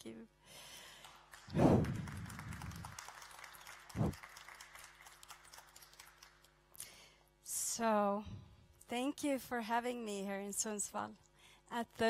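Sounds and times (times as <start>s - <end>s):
audience applauding: 1.0s - 6.5s.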